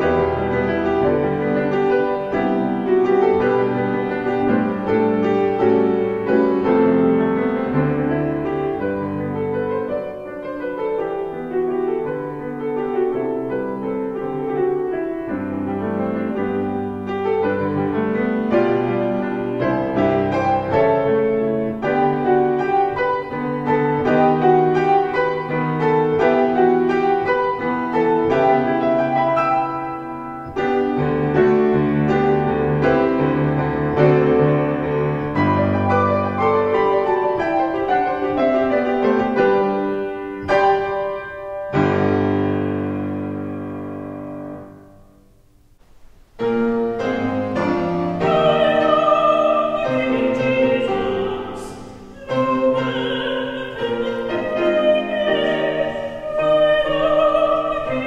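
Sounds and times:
grand piano solo: 0:00.0 - 0:58.0
soprano singing with vibrato: 0:17.5 - 0:29.7, 0:47.6 - 0:58.0.

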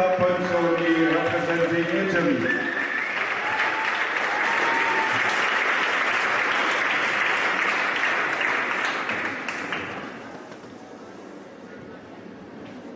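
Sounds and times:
audience applauding: 0:00.7 - 0:10.3.

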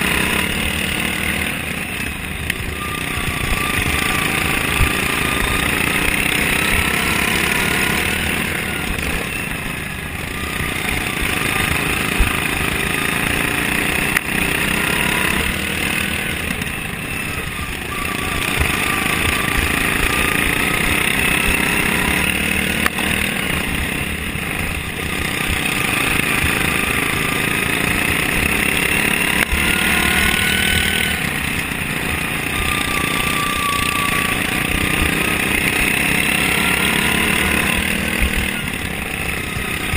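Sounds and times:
lawn mower engine running hard: 0:00.0 - 0:39.9.

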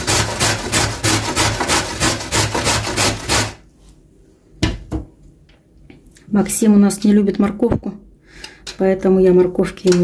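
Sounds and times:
carrot grating on metal grater: 0:00.0 - 0:03.6.

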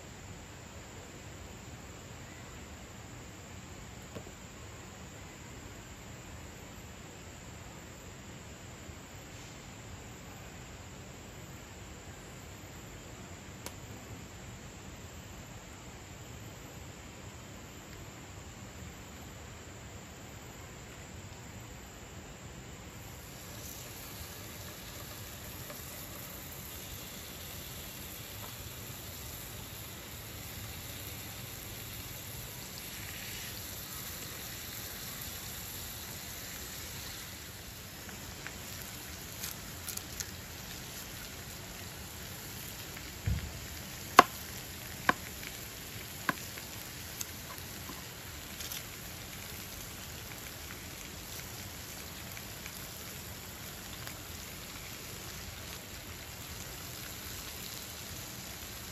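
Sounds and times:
meat sizzling in a frying pan: 0:23.0 - 0:58.9.

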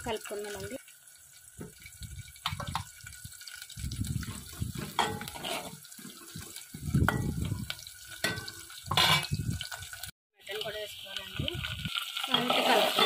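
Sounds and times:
faint sizzle of frying: 0:00.0 - 0:13.0
ladle scraping and clinking on pot: 0:04.2 - 0:07.6, 0:08.2 - 0:09.4, 0:12.2 - 0:13.0.

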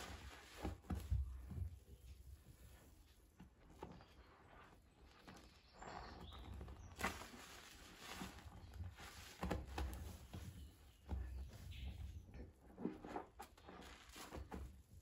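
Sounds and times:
wet sponge squelching: 0:00.0 - 0:01.5, 0:04.3 - 0:10.2, 0:12.8 - 0:14.6.

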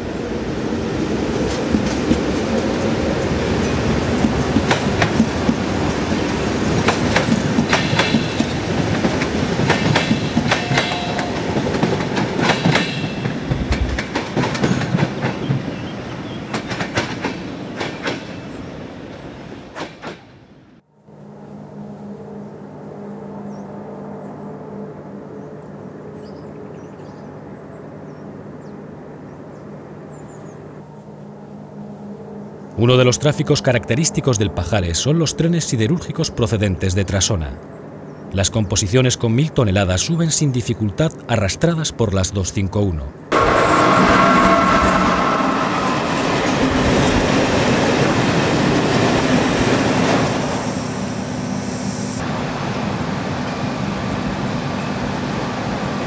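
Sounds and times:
electric train passing: 0:00.0 - 0:42.2, 0:43.1 - 0:56.0
wheels clacking over rail joints: 0:01.4 - 0:20.3.

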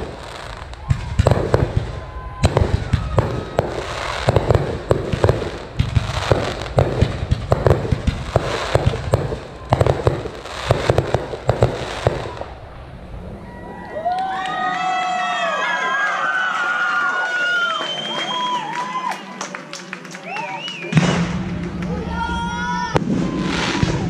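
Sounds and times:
fireworks bursting and crackling: 0:00.0 - 0:15.1, 0:20.6 - 0:24.0
crowd cheering and whistling: 0:00.6 - 0:04.6, 0:13.2 - 0:24.0.

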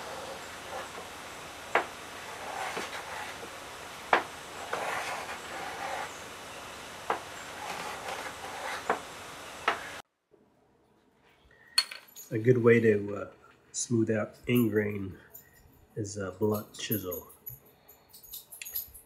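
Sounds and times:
rasping strokes on wood: 0:00.0 - 0:10.0.

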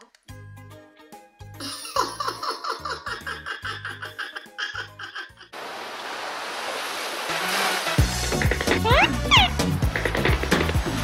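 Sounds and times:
bouncy cartoon music: 0:00.1 - 0:05.5, 0:07.8 - 0:11.0.

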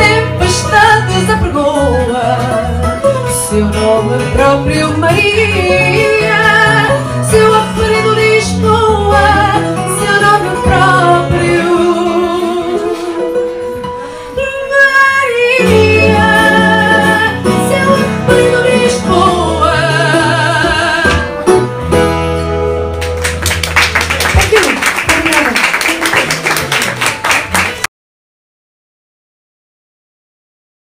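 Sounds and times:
woman singing: 0:00.0 - 0:13.4, 0:14.3 - 0:21.4
plucked guitar: 0:00.0 - 0:27.8.

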